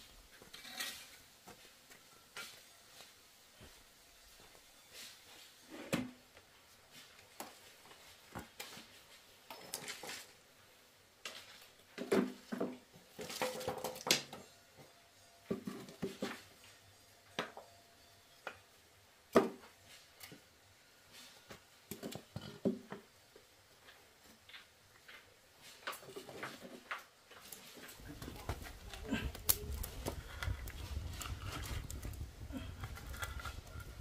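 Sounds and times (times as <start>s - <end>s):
objects knocking and clattering: 11.3s - 16.6s, 21.9s - 23.1s.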